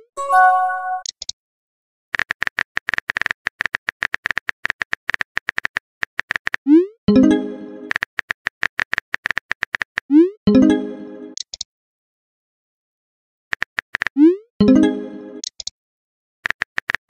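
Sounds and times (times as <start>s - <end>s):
message chime: 0.0s - 1.0s, 7.1s - 7.9s, 10.5s - 11.4s.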